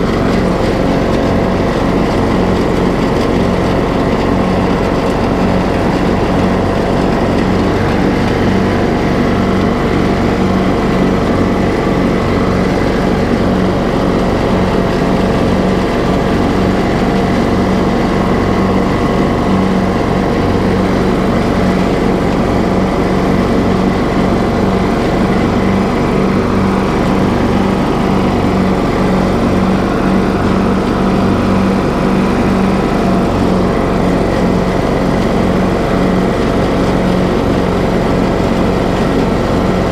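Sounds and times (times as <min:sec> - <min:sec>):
riding lawn mower engine running: 0:00.0 - 0:39.9.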